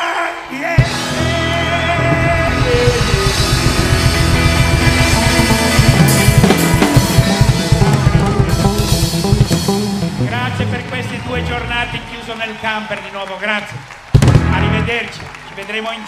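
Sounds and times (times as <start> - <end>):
instrumental rock music: 0.8 - 12.4, 14.0 - 15.3.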